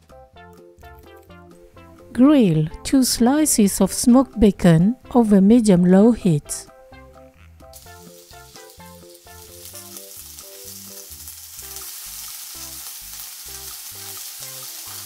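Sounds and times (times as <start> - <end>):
upbeat background melody: 0.0 - 12.8
bacon sizzling in a frying pan: 7.8 - 15.0.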